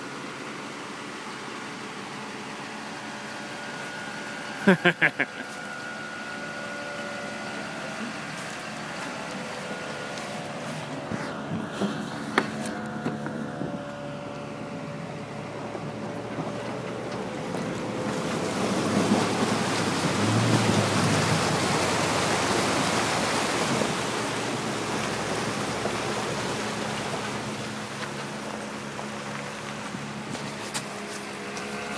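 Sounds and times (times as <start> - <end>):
pickup truck engine hum: 0.0 - 31.9
water rushing and splashing: 15.3 - 31.9.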